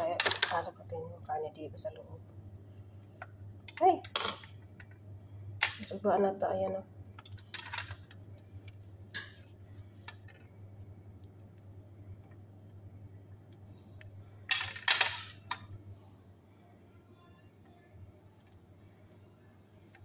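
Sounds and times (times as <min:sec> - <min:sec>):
low hum: 0:08.1 - 0:14.6.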